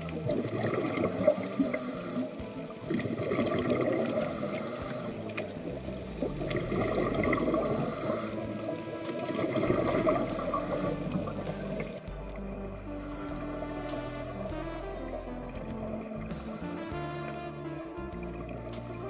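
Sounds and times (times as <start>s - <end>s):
faint whale song: 0.0s - 19.0s
underwater bubbling: 0.0s - 19.0s
diver breathing through regulator: 1.0s - 2.4s, 3.8s - 5.4s, 6.3s - 8.6s, 9.9s - 11.9s, 12.7s - 14.6s, 16.3s - 17.5s.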